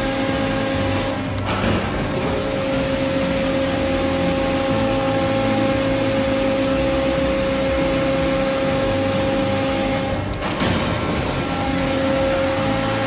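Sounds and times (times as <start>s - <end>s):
piston pump machinery drone: 0.0s - 13.0s.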